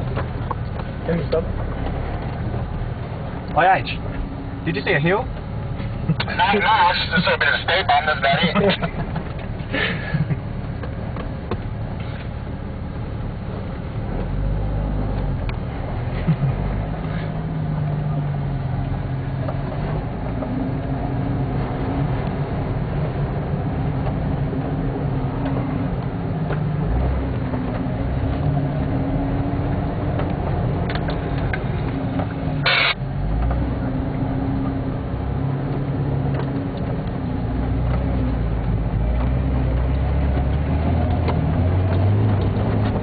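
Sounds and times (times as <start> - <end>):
vehicle engine under load: 0.0 - 43.0
short sharp noise: 32.6 - 33.0.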